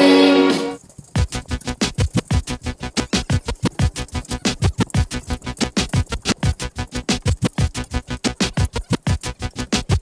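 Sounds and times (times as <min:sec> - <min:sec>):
electronic dance music: 0:00.5 - 0:10.0.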